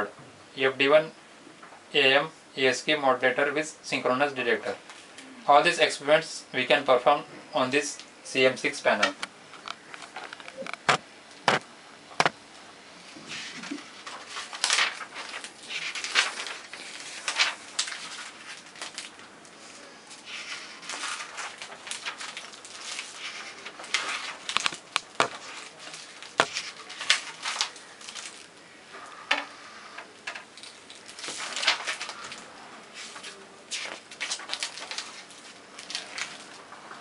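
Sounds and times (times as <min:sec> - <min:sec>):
paper pages turning: 0:09.0 - 0:11.6, 0:13.3 - 0:28.6, 0:30.3 - 0:37.0.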